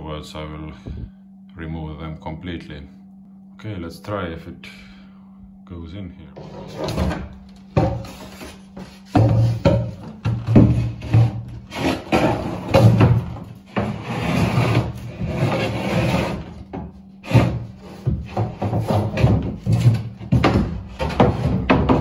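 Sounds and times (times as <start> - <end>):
panel scraping against hull: 6.4 - 22.0.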